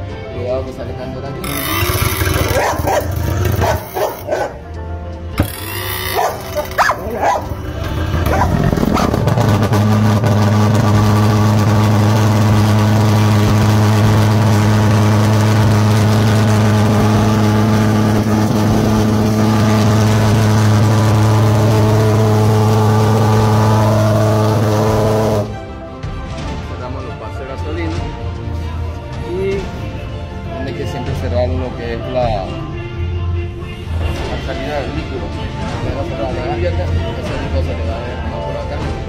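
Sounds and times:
pulse-jet engine pops and sputters: 0:01.4 - 0:04.5, 0:05.4 - 0:22.0.

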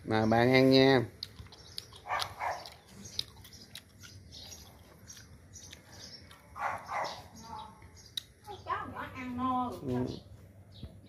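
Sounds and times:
dog barking: 0:02.0 - 0:02.8, 0:06.6 - 0:07.3.

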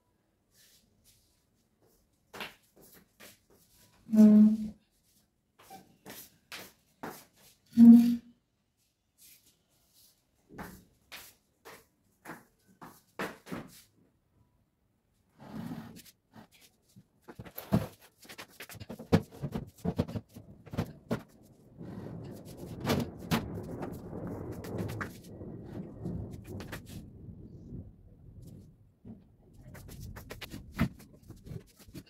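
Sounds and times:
household items knocking and clattering: 0:17.3 - 0:21.4, 0:22.2 - 0:23.9.

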